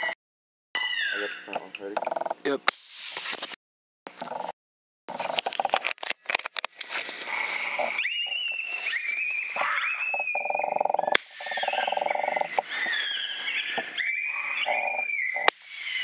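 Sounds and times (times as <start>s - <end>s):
coyotes howling and yipping: 0.8s - 1.6s, 7.2s - 16.0s
sharp crack: 11.1s - 11.4s.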